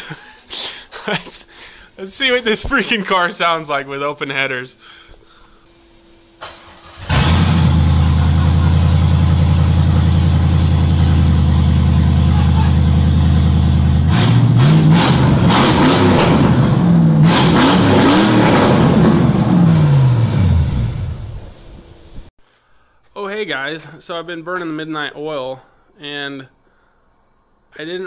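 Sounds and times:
car engine revving: 0:06.4 - 0:22.2
car engine idling loud: 0:07.0 - 0:17.2.

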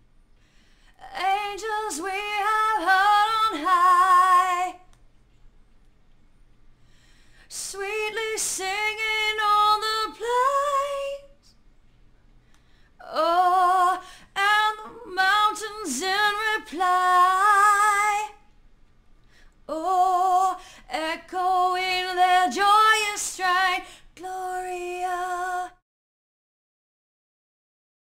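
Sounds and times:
woman singing unaccompanied: 0:01.0 - 0:04.9, 0:07.5 - 0:11.4, 0:13.0 - 0:18.4, 0:19.7 - 0:25.8.

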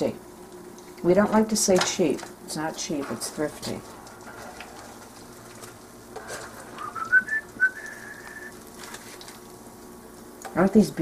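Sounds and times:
whistled notes: 0:06.8 - 0:08.6.

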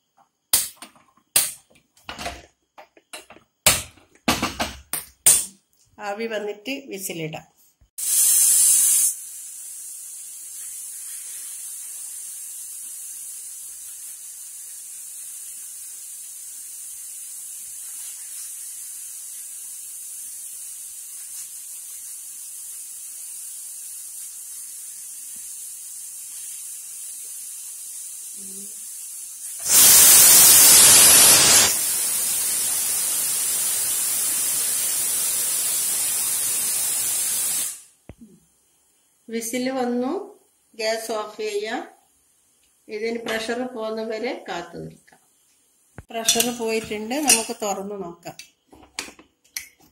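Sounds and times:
pressure cooker steam whistle: 0:08.0 - 0:17.8, 0:22.2 - 0:37.8
pressure cooker hissing: 0:08.0 - 0:37.9.

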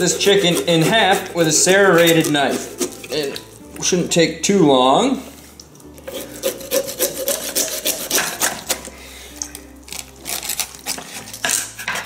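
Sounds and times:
serrated knife sawing chicken: 0:00.0 - 0:03.4, 0:06.0 - 0:12.0.

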